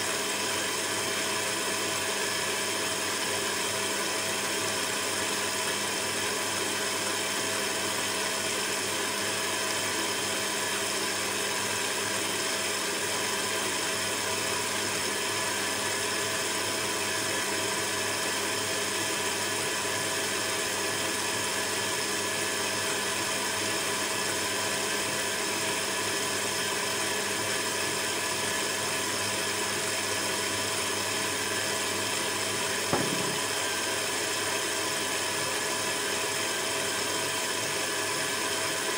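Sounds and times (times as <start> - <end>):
stand mixer running: 0.0 - 38.9
short knock: 32.9 - 33.6.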